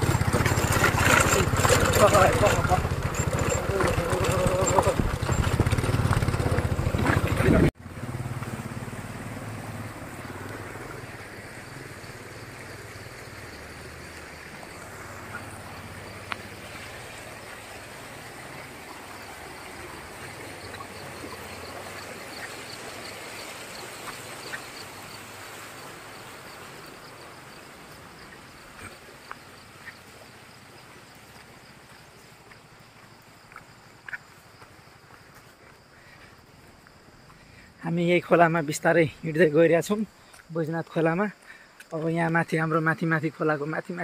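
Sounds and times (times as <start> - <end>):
motorcycle engine running: 0.0 - 10.8
stream running over stones: 0.0 - 44.0.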